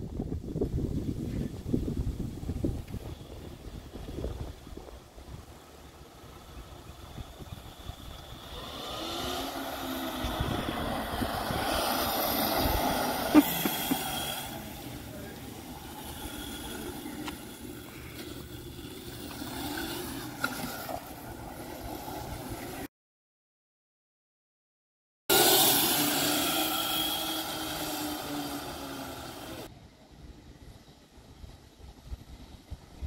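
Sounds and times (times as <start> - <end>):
electric go-kart motor whining: 5.4 - 22.9, 25.3 - 29.7.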